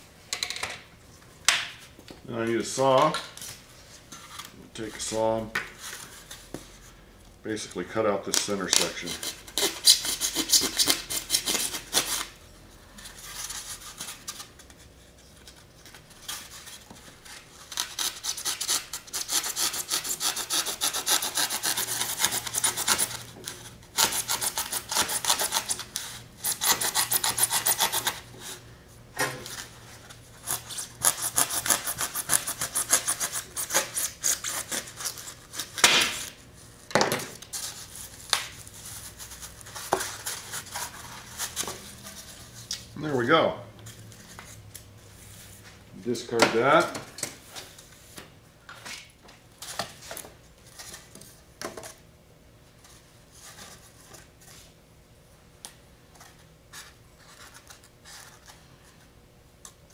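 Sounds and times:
hand saw rasping through foam: 0:17.8 - 0:23.2, 0:26.4 - 0:28.2, 0:30.4 - 0:35.0.

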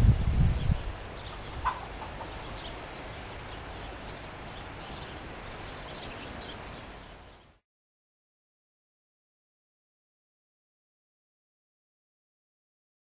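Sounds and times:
wind buffeting microphone: 0:00.0 - 0:06.8
outdoor hiss: 0:00.0 - 0:07.6.

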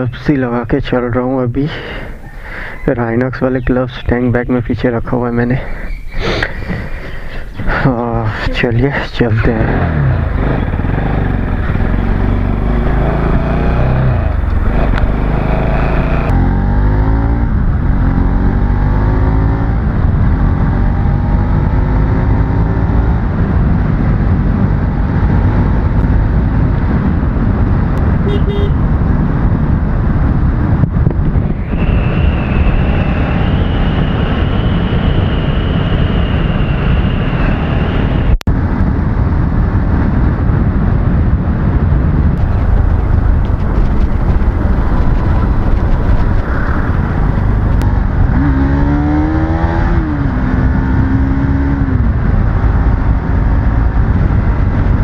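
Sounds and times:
wind and road noise: 0:00.0 - 0:55.0
motorbike engine accelerating: 0:07.6 - 0:36.4, 0:42.1 - 0:55.0.

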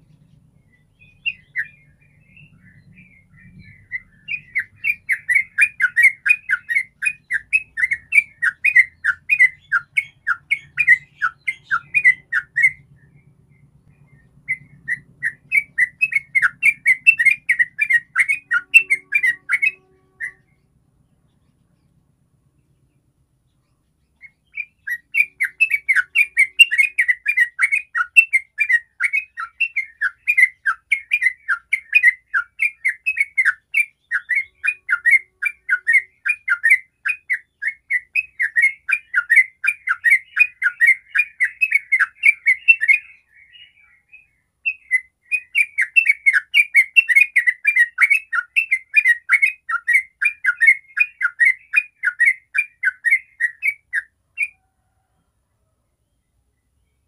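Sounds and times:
bird singing chattering notes: 0:00.0 - 0:22.0, 0:22.7 - 0:54.6.

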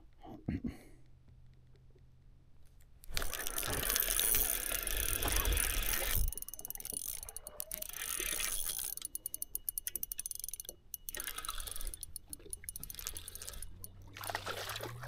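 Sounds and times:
fishing reel ticking whir: 0:03.0 - 0:15.0.

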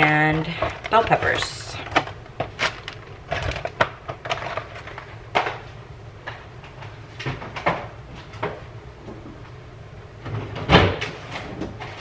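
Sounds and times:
refrigerator door opening: 0:10.2 - 0:12.0.

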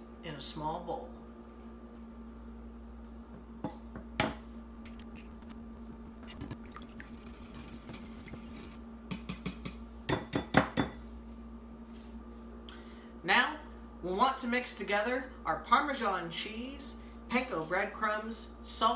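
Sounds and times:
whisk clinking against glass bowl: 0:06.3 - 0:11.0.

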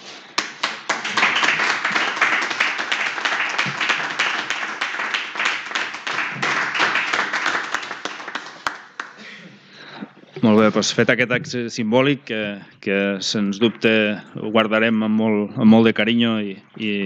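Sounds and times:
group applauding: 0:00.0 - 0:09.4.

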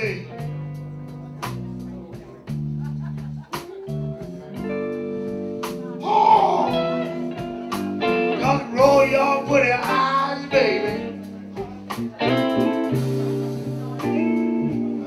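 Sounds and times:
bass and guitar notes: 0:00.0 - 0:15.0
drums keeping time: 0:00.0 - 0:15.0
lead electric guitar bending notes: 0:03.8 - 0:15.0.

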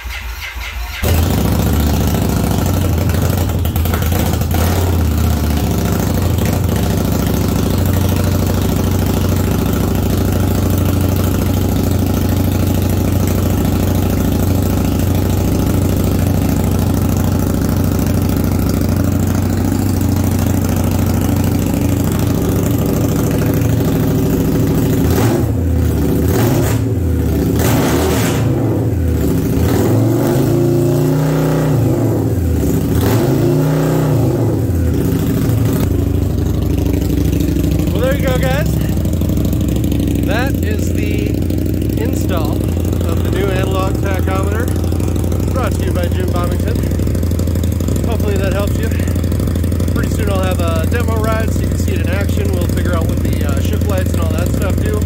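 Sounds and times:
motorcycle engine starting and idling: 0:00.0 - 0:55.0.

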